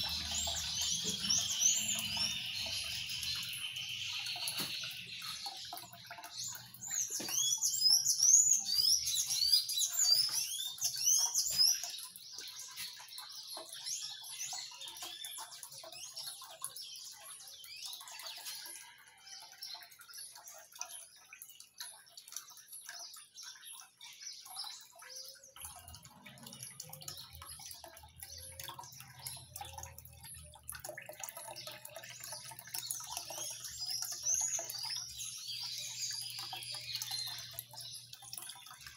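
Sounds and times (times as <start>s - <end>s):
small bird chirping: 0.0s - 18.6s
fountain water trickling: 0.0s - 38.9s.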